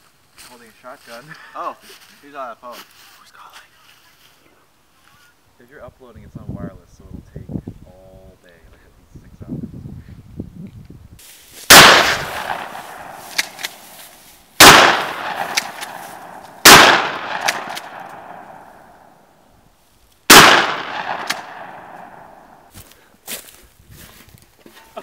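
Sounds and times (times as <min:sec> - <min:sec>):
shotgun shots: 0:11.7 - 0:13.8, 0:14.6 - 0:18.8, 0:20.3 - 0:22.6.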